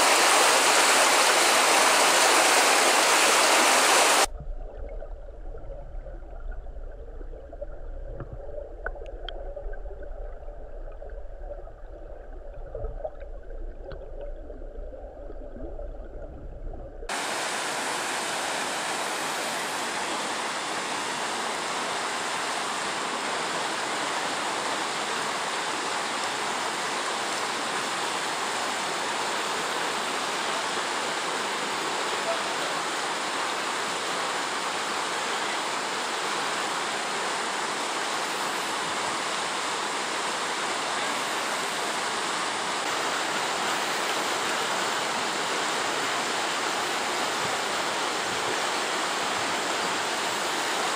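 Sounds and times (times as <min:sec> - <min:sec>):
rapids rushing: 0:00.0 - 0:04.3
river water flowing: 0:00.0 - 0:04.3, 0:04.9 - 0:50.9.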